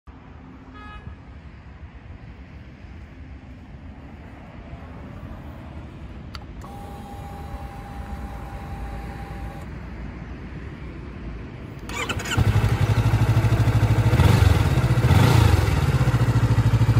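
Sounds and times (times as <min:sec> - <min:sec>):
low wind rumble: 0:00.1 - 0:16.9
fuel pump whine: 0:06.3 - 0:09.7.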